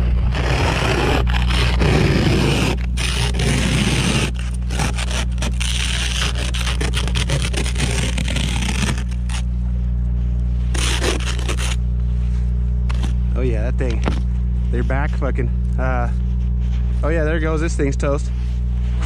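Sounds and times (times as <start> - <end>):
ice scraper scraping window: 0.0 - 9.5, 10.6 - 11.8, 12.9 - 13.2
steady low hum: 0.0 - 19.0.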